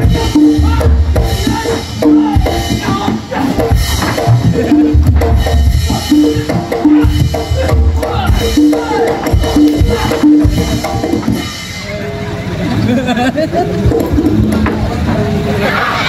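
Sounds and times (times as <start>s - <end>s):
drums beating deep strokes: 0.0s - 16.0s
metallophone notes: 0.0s - 16.0s.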